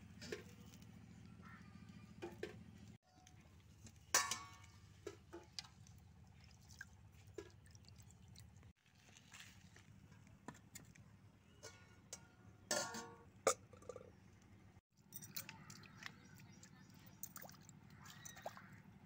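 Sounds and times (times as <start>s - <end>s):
metal plate clattering on stone: 4.2s - 4.7s, 11.7s - 14.0s.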